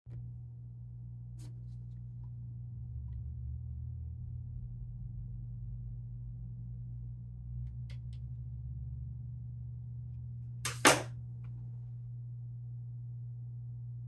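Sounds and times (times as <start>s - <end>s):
low electrical hum: 0.1s - 14.0s
sharp clack on table: 10.7s - 11.1s.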